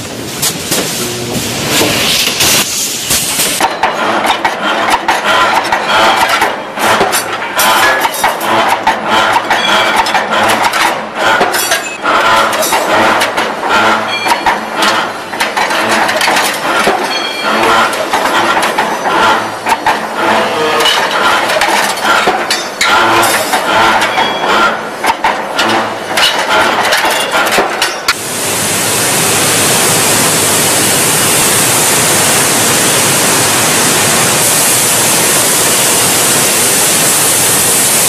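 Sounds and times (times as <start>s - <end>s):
rapid metallic clicks and clanks: 2.2s - 28.2s
rod bending machine running: 3.6s - 28.2s.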